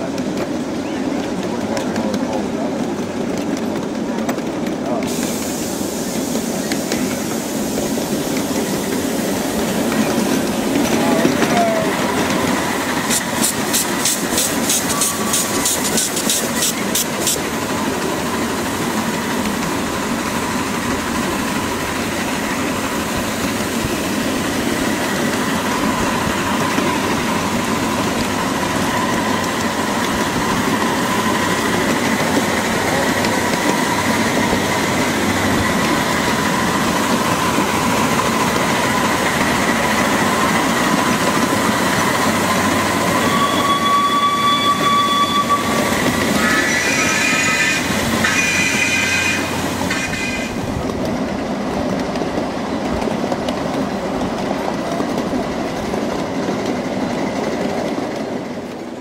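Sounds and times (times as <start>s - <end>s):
miniature steam train running: 0.0s - 59.0s
thin wavering squeal: 42.9s - 49.1s.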